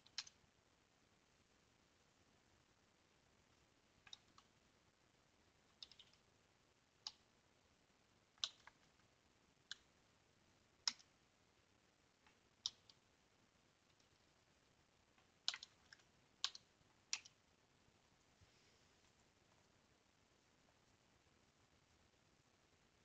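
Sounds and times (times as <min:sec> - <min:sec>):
computer keyboard keystrokes: 0:04.0 - 0:04.5, 0:05.7 - 0:06.2, 0:08.4 - 0:08.8, 0:10.8 - 0:11.1, 0:12.6 - 0:13.0, 0:15.4 - 0:17.4.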